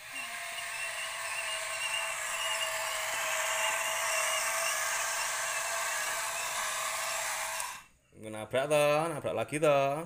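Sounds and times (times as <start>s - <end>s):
toy electric motors whirring: 0.0s - 7.9s.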